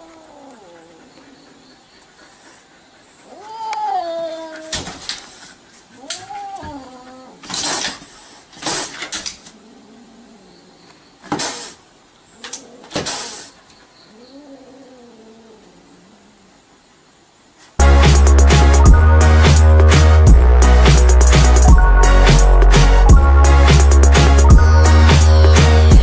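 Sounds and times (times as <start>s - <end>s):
cat yowling: 3.3s - 4.9s, 6.0s - 7.4s
cat hissing: 5.9s - 10.4s, 11.2s - 16.0s.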